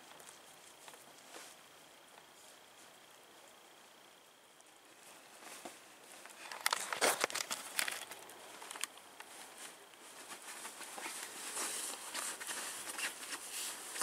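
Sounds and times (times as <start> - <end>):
bedding rustling and crinkling: 0.0 - 4.1, 4.8 - 14.0.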